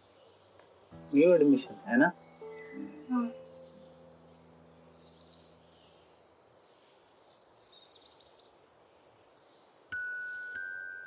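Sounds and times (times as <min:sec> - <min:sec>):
faint bird chirping: 0:00.0 - 0:11.0.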